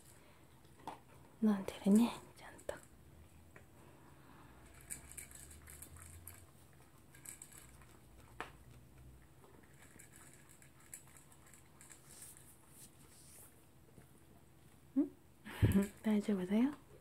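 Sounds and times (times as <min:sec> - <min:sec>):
dog crunching dry kibble: 0:04.7 - 0:12.7.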